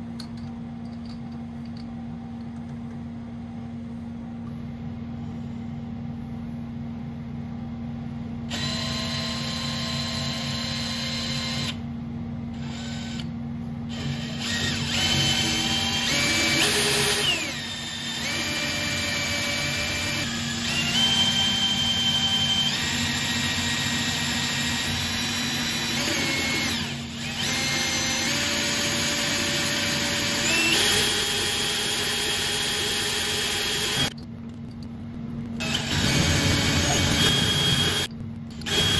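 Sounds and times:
motor whine: 13.9 - 34.2, 35.6 - 38.9.

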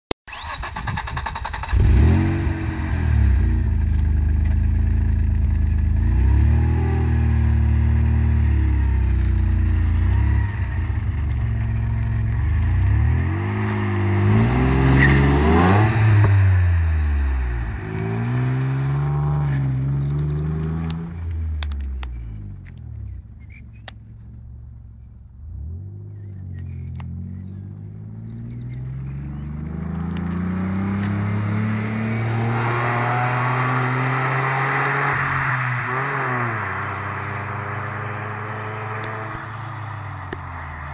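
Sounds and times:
car engine revving and accelerating: 1.5 - 23.2, 25.4 - 40.9.

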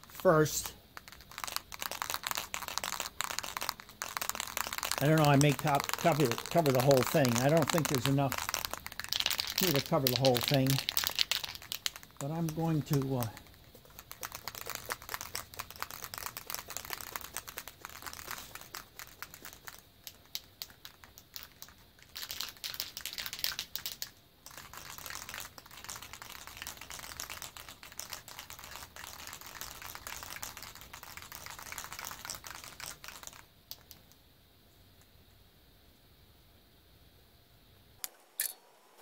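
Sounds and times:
spray can rattling: 0.0 - 34.2.

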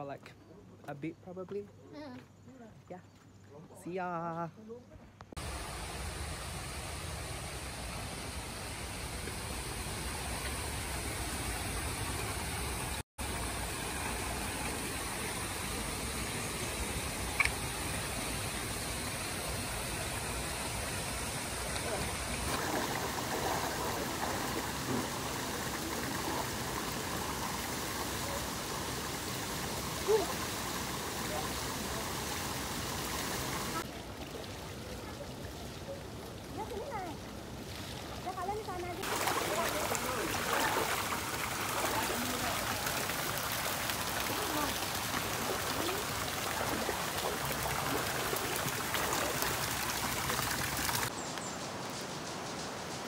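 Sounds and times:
running water rushing: 5.3 - 53.0.

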